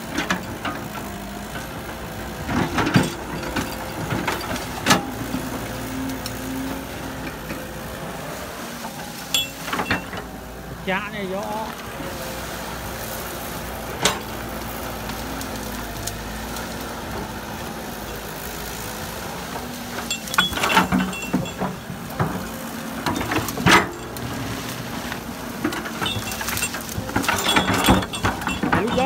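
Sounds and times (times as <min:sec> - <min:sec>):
excavator running: 0:00.0 - 0:29.0
metal clanks: 0:09.3 - 0:10.3, 0:20.0 - 0:24.2, 0:25.6 - 0:29.0.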